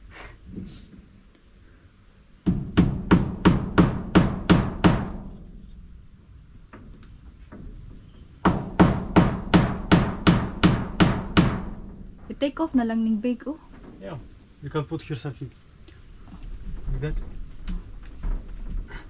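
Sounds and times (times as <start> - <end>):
hammer driving nails into wood: 2.4 - 5.5, 8.4 - 11.9.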